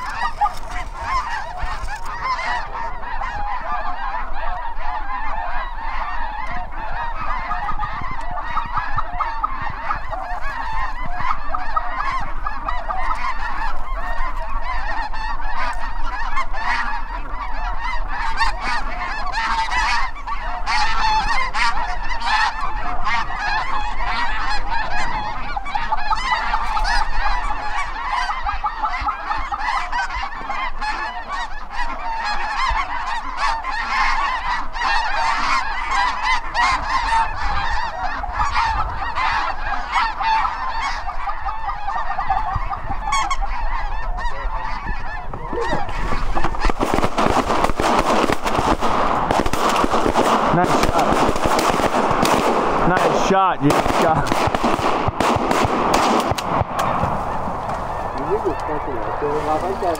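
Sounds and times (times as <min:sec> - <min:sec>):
geese honking: 0:00.0 - 0:59.9.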